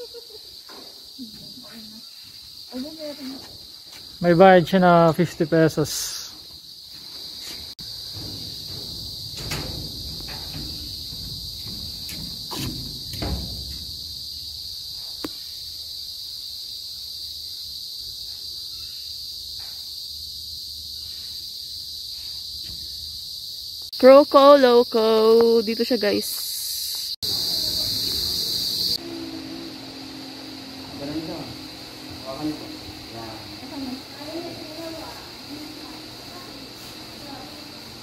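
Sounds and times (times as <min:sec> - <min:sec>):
insect chorus: 0:00.0 - 0:38.0
knocks and low thuds: 0:07.8 - 0:14.6.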